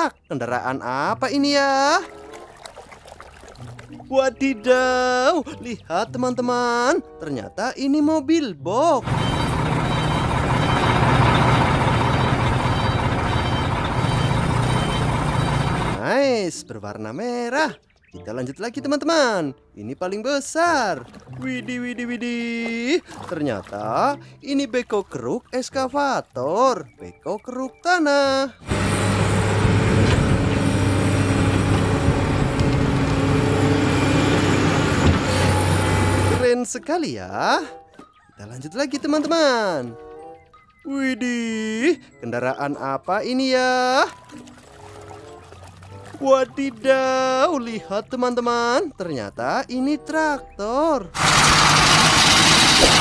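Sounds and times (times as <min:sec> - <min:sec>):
diesel truck engine rumbling: 0:09.0 - 0:16.0, 0:28.5 - 0:36.4, 0:49.7 - 0:53.0.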